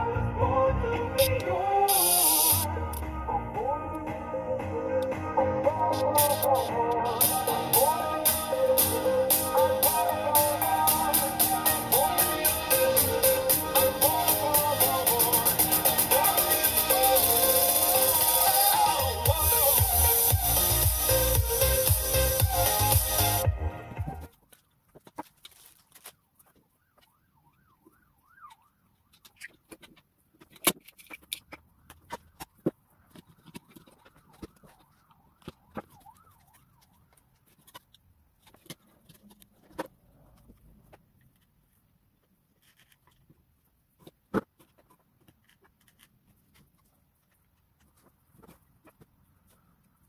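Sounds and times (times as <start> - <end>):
plastic parts and tools clicking: 24.3 - 27.2, 27.8 - 50.0.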